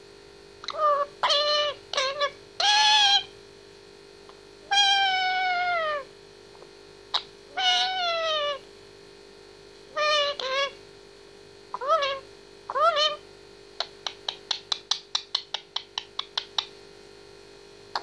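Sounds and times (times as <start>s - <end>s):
parakeet calls sliding downward: 7.6s - 8.6s.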